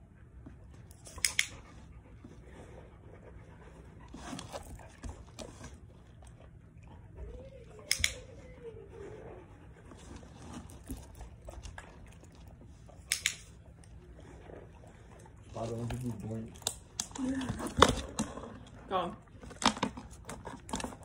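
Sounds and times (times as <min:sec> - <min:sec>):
dog chewing and licking: 0:00.1 - 0:08.6, 0:09.4 - 0:21.0
dog-training clicker clicks: 0:01.1 - 0:01.6, 0:07.9 - 0:08.2, 0:13.0 - 0:13.5.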